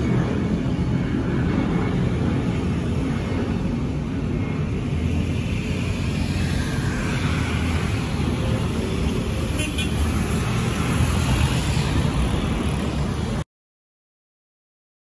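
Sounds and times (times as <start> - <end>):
aircraft engine rumble: 0.0 - 9.7.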